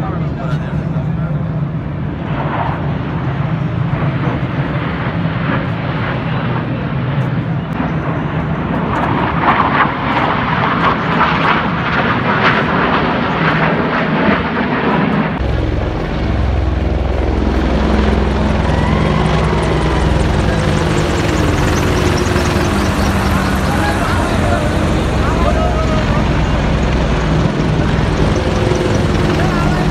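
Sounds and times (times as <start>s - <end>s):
military jets roaring overhead: 0.0s - 29.9s
helicopter rotor thrum: 15.3s - 29.9s.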